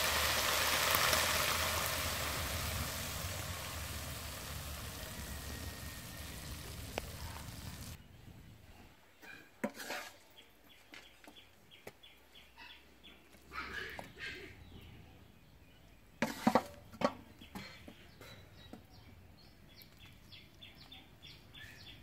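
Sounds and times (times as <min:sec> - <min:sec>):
food sizzling in a wok: 0:00.0 - 0:08.0.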